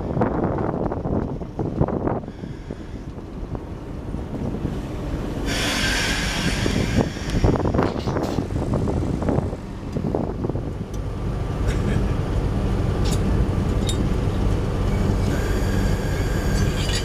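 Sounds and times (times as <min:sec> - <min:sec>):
diesel locomotive idling: 0:00.0 - 0:17.0
high hiss: 0:05.5 - 0:07.8.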